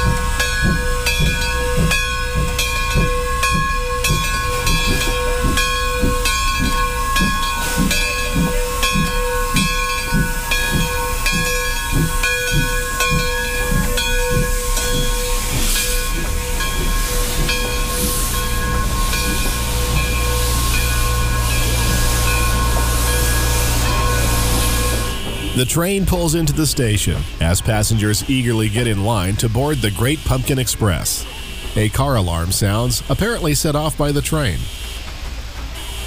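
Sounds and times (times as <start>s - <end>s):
coaches rolling rumble: 0.0s - 35.8s
steam locomotive exhaust chuffs: 0.0s - 36.0s
hiss of steam: 6.6s - 27.2s.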